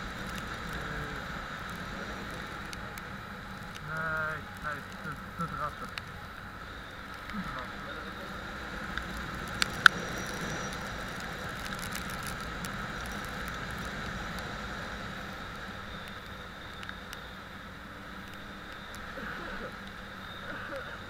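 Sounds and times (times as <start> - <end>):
vehicle running noise: 0.0 - 21.0.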